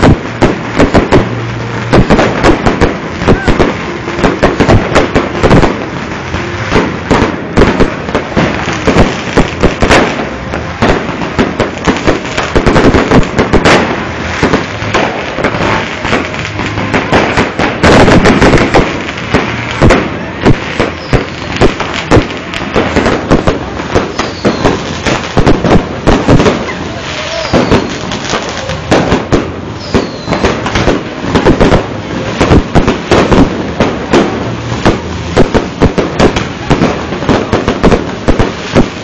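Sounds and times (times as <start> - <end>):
fireworks bangs: 0.0 - 39.0.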